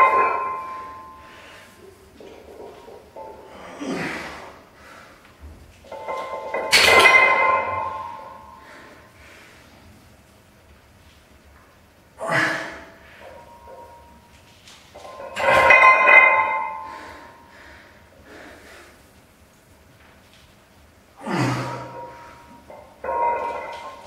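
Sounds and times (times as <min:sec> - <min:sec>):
barbell clanking on metal stands: 0:00.0 - 0:03.8, 0:05.8 - 0:08.7, 0:13.2 - 0:17.4, 0:21.2 - 0:24.0
iron plates ringing: 0:00.0 - 0:04.0, 0:05.8 - 0:09.0, 0:12.3 - 0:17.9, 0:21.2 - 0:24.0.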